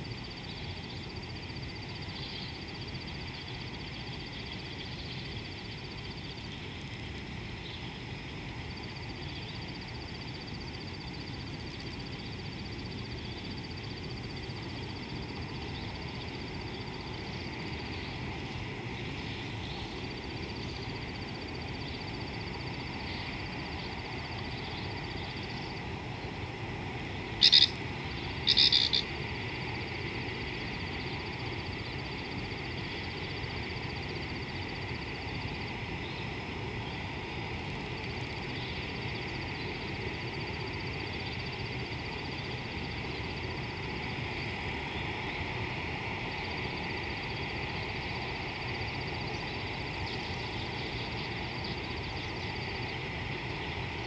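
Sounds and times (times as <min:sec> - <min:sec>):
high-pitched trilling animal chorus: 0:27.4 - 0:27.8, 0:28.5 - 0:29.0
loud sharp animal calls: 0:27.4 - 0:27.8, 0:28.4 - 0:29.1.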